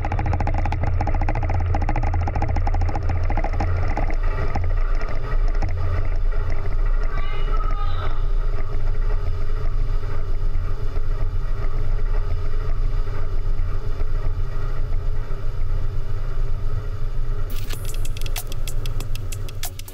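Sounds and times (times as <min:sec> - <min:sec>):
low rumble: 0:00.0 - 0:19.9.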